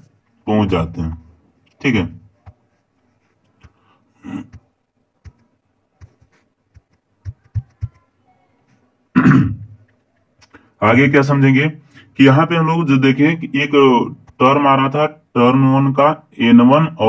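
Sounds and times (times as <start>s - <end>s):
man speaking: 0.4s - 2.2s, 10.8s - 17.0s.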